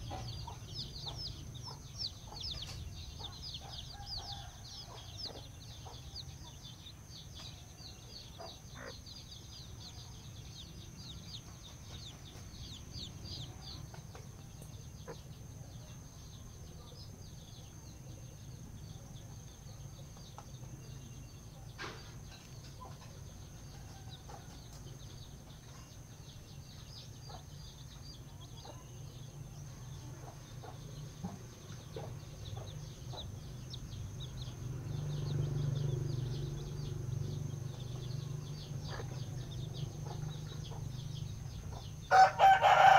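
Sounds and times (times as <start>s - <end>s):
chicks peeping: 0.0s - 42.9s.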